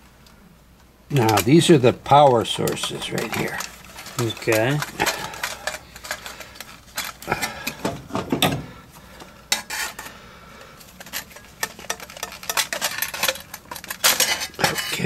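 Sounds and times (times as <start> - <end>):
wires and connectors clicking: 0.2 - 8.6.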